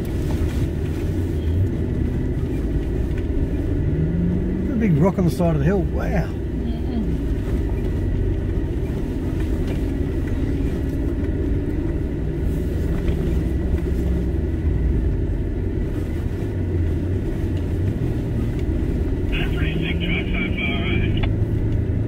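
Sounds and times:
car engine: 0.0s - 22.0s
tyres rumbling on gravel: 0.0s - 22.0s.

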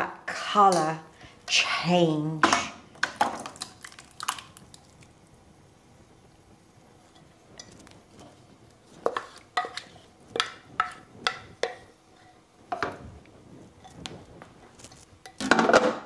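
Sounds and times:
utensil scraping a pot: 7.0s - 12.9s, 13.6s - 15.4s.

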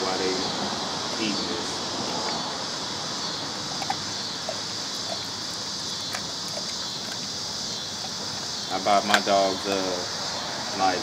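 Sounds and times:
steady background hiss: 0.0s - 11.0s
dog teeth crunching on bone: 3.6s - 9.9s.

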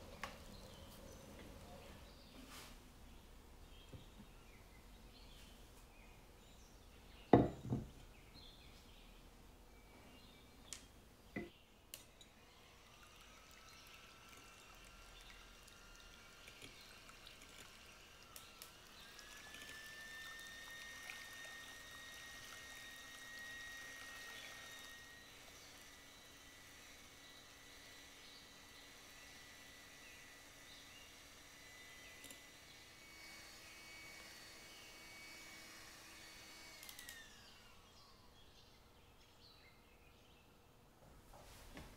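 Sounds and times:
electric hand mixer whine: 12.1s - 38.6s.

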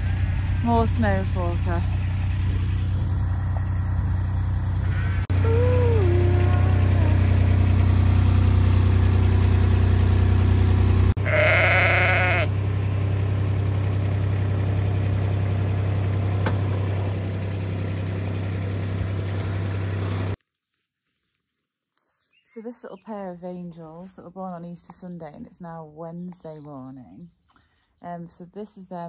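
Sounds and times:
vehicle engine idling: 0.0s - 20.4s
sheep bleating: 11.2s - 12.5s.

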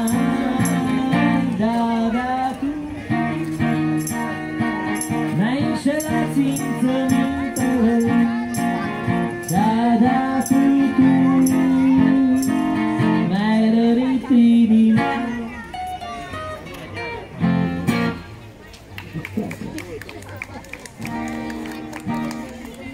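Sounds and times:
electric guitar playing: 0.0s - 14.0s, 14.8s - 18.3s
high ticking beat: 3.8s - 13.0s.

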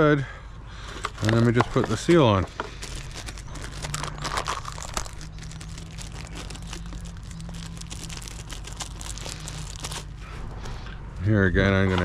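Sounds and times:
plastic bag crinkling: 1.2s - 10.2s.

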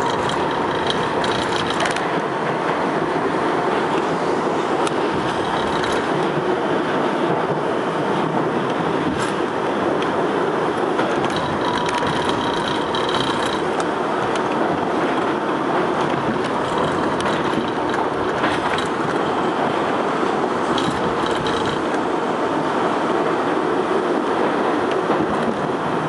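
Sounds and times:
wheel squeals: 0.0s - 2.1s, 5.0s - 6.4s, 11.1s - 14.5s, 16.0s - 19.7s, 20.6s - 22.0s
rail clicks: 0.0s - 26.0s
train wheels rumbling on rails: 0.0s - 26.0s.

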